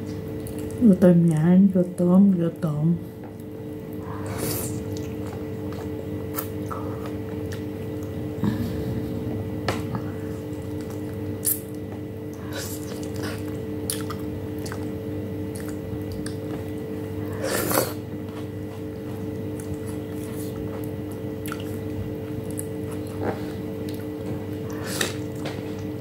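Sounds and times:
steady low hum: 0:00.0 - 0:26.0
wet mouth smacks while chewing: 0:19.6 - 0:21.9.

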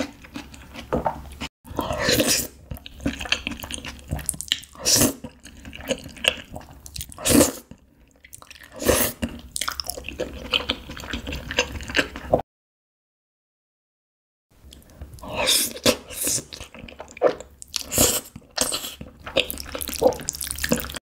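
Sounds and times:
wet chewing: 0:15.7 - 0:21.0.

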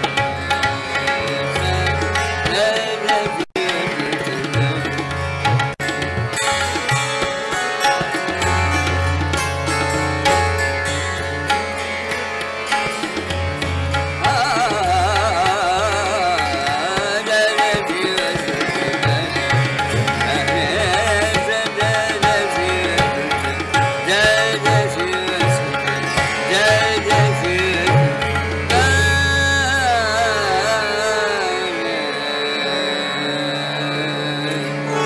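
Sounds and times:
man singing: 0:00.0 - 0:05.6, 0:14.1 - 0:35.0
tabla: 0:00.0 - 0:35.0.

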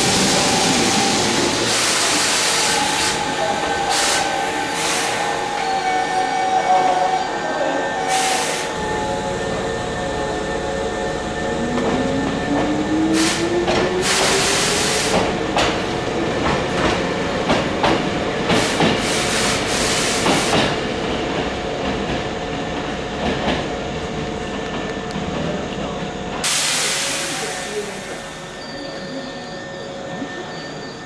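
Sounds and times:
train rumble: 0:07.6 - 0:28.6
burst of hiss: 0:26.4 - 0:28.2.

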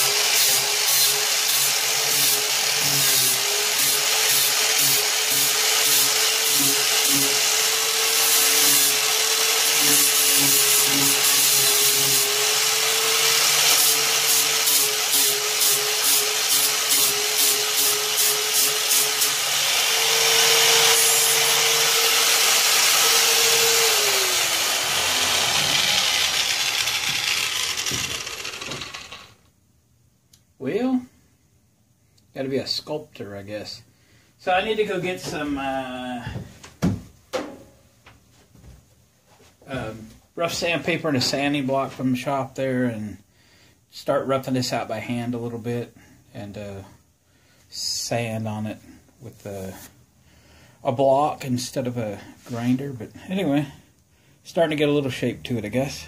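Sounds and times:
angle grinder sanding: 0:00.0 - 0:29.4
grinder winding down: 0:00.0 - 0:29.5.

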